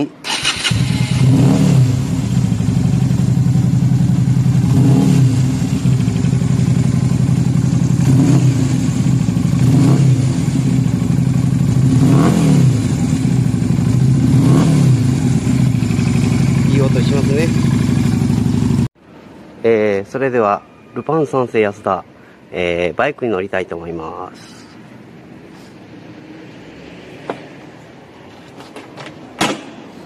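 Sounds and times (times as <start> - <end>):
motorcycle engine idling and revving: 0.3 - 19.0.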